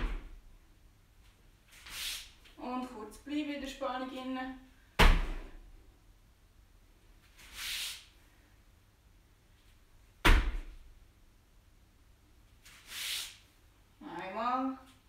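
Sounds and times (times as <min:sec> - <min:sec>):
short soft hiss: 0:01.7 - 0:02.5, 0:07.3 - 0:08.2, 0:12.6 - 0:13.6.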